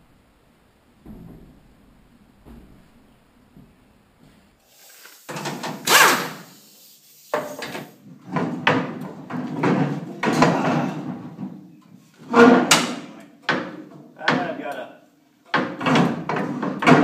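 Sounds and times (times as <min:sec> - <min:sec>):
metal plate scraping sheet metal: 0:12.2 - 0:13.1.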